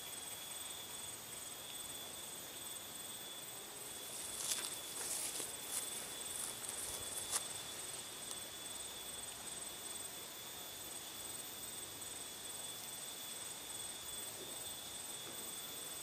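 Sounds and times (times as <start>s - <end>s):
faint high whine: 0.0s - 16.0s
rustling in grass: 4.0s - 8.6s.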